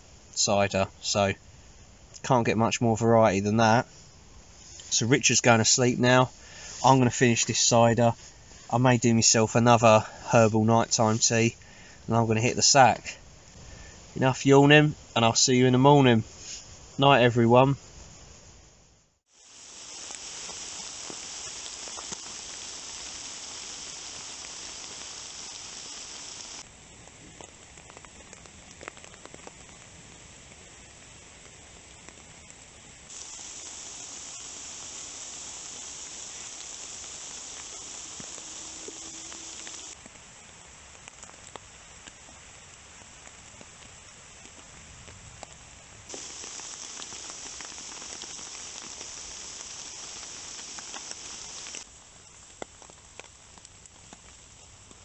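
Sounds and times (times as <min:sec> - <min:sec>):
rain on tarp and tent: 0:04.6 - 0:12.0, 0:19.3 - 0:55.0
water drips: 0:46.1 - 0:51.8.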